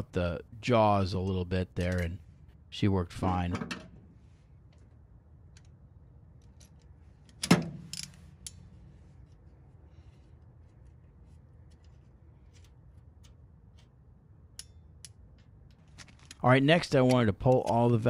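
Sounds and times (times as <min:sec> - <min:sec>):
faint clicks and scrapes: 0:08.0 - 0:14.0.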